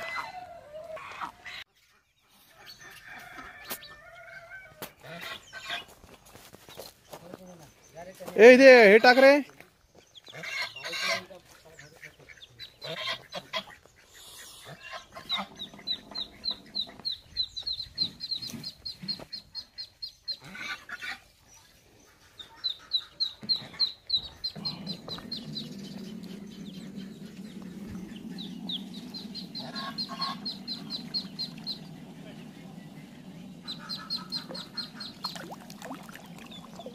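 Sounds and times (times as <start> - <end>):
ducklings peeping: 0.0 - 6.1, 9.9 - 36.9
steady low hum: 24.7 - 36.9.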